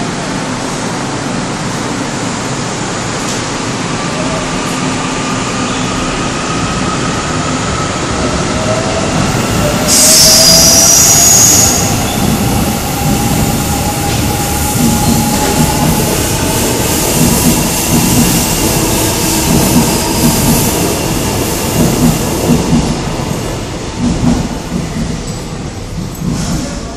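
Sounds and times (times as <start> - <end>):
loud high-pitched squeal: 5.5 - 17.1.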